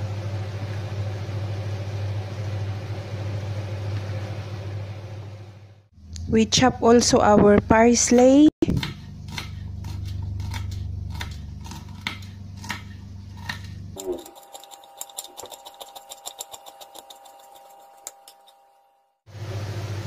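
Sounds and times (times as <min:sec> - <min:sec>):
low hum: 0:00.0 - 0:20.0
knife chopping on cutting board: 0:08.7 - 0:18.4.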